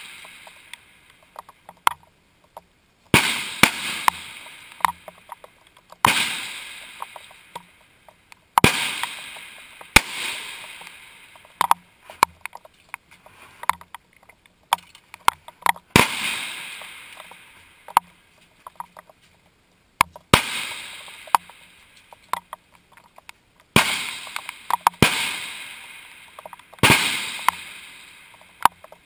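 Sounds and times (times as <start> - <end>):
small clicks and knocks: 0.0 - 2.7, 4.0 - 6.2, 6.8 - 15.9, 16.8 - 20.3, 20.9 - 25.0, 26.3 - 27.7, 28.3 - 29.0
rifle shots echoing: 3.1 - 5.2, 6.0 - 7.6, 8.6 - 11.7, 15.9 - 17.6, 20.3 - 21.6, 23.7 - 28.5.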